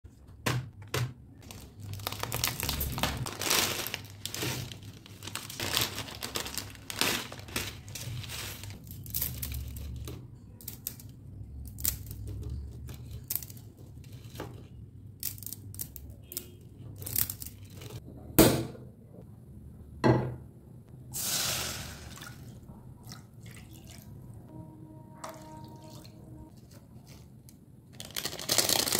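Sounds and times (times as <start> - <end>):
plastic packet crinkling and tearing: 1.4 - 10.0, 27.9 - 28.9
dry noodles crackling: 1.4 - 14.4, 15.2 - 18.0, 26.5 - 28.9
water pouring into a pan: 21.2 - 22.6.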